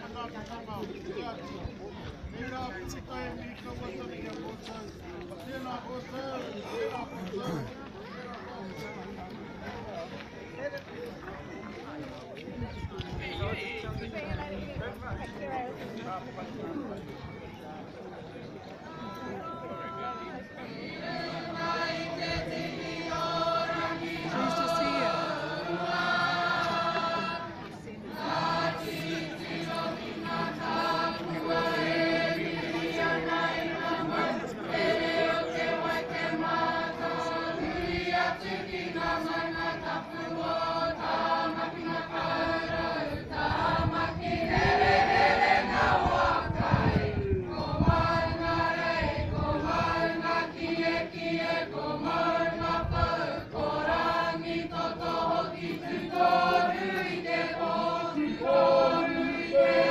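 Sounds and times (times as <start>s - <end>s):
group of people singing: 19.4s - 59.9s.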